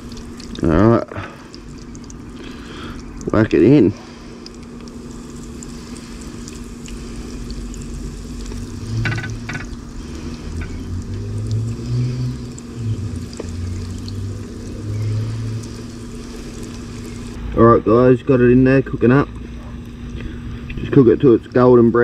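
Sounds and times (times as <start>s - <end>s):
fish frying in oil: 0.0s - 17.4s
low rumbling: 0.0s - 21.2s
steady low hum: 0.0s - 22.0s.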